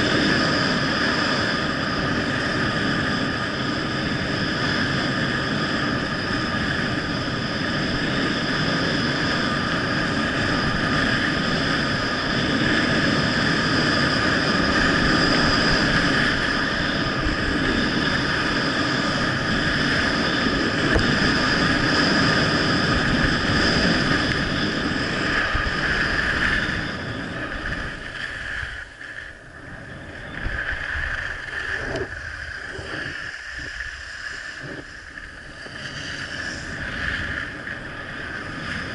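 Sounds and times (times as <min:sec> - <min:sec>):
wind rushing over microphone: 0:00.0 - 0:38.9
skis hissing on packed snow: 0:23.0 - 0:38.9.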